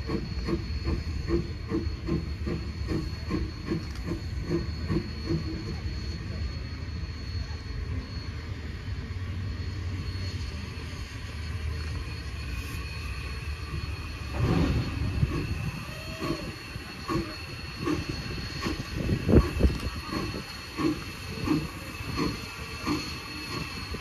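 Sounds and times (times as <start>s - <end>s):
steam locomotive chuffs: 0.0s - 24.0s
steam locomotive rumble: 0.0s - 24.0s
brief squeal: 9.5s - 24.0s.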